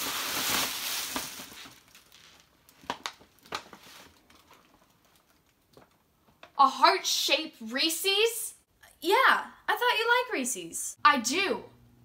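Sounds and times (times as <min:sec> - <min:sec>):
tissue paper rustling: 0:00.0 - 0:05.3.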